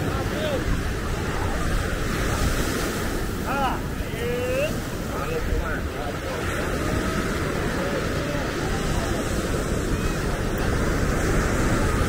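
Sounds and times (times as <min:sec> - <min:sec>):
faint voices: 0:00.0 - 0:12.0
ocean surf rushing: 0:00.0 - 0:12.0
wind buffeting microphone: 0:00.0 - 0:12.0.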